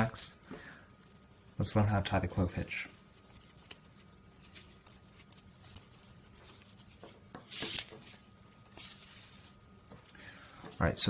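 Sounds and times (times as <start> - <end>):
rope rustling on wooden table: 2.9 - 11.0.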